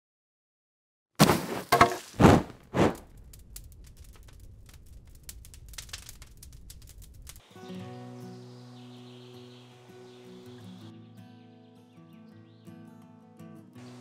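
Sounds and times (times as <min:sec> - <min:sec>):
loud thunks and cracks: 0:01.2 - 0:03.1
faint irregular crackling clicks: 0:03.0 - 0:07.4.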